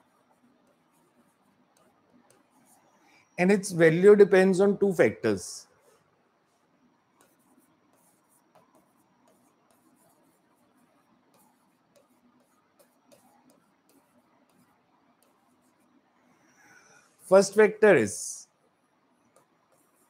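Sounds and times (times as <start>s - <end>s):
pen tapping and scratching on board: 0.0s - 3.1s, 7.1s - 16.5s, 19.0s - 20.0s.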